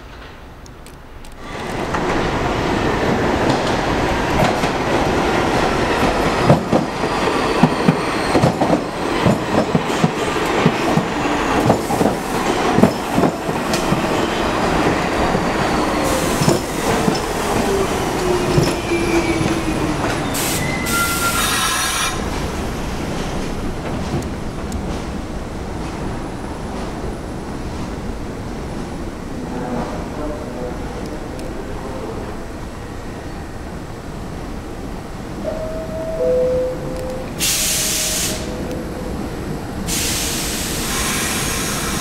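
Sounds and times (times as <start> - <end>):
train wheels clattering: 3.1 - 20.6
high brake squeals: 20.2 - 22.2.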